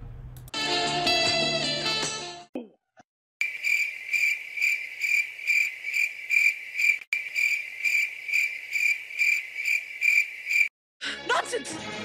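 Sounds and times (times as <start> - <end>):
crickets chirping: 3.4 - 10.7.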